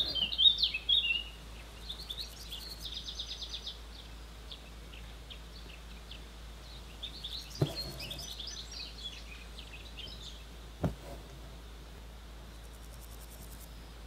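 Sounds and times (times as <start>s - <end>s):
low steady hum: 0.0s - 14.0s
small birds chirping: 0.0s - 14.0s
short knocks: 7.6s - 8.2s, 10.8s - 11.4s.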